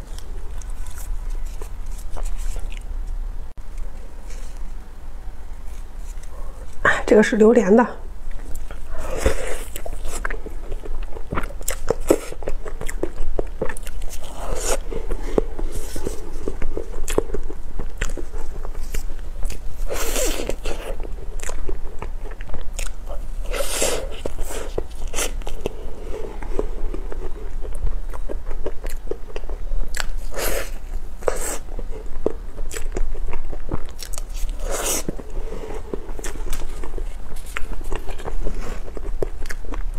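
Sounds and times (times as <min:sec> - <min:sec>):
biting and wet chewing: 0:00.0 - 0:04.8, 0:08.2 - 0:39.9.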